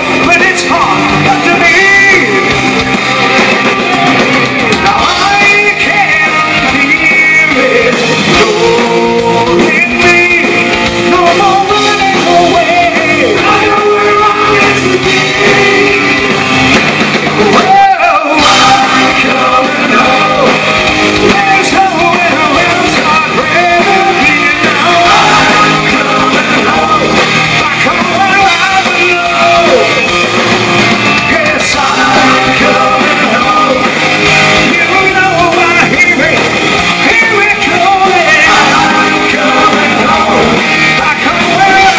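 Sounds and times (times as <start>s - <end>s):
man singing: 0.0s - 2.8s, 3.8s - 16.8s, 17.4s - 30.3s, 31.1s - 41.9s
bass guitar: 0.0s - 41.9s
drums: 0.0s - 41.9s
electric guitar: 0.0s - 41.9s.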